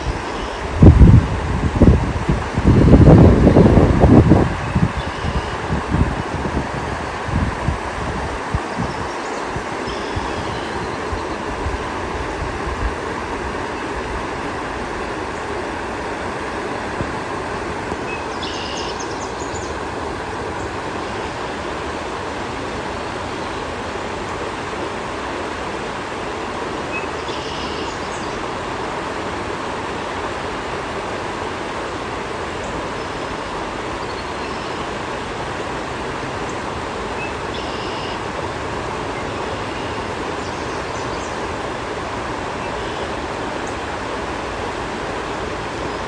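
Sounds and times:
river rapids rushing over rocks: 0.0s - 46.0s
small bird high call: 5.0s - 5.6s, 8.7s - 11.4s, 18.1s - 19.7s, 26.9s - 28.4s, 37.2s - 38.2s.

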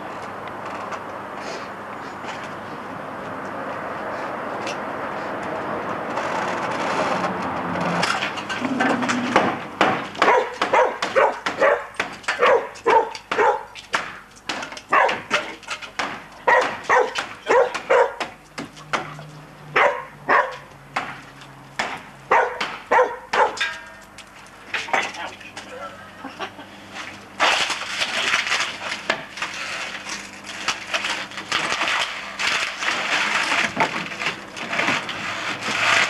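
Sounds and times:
hammer striking wooden frame: 9.3s - 19.2s, 20.9s - 24.0s.

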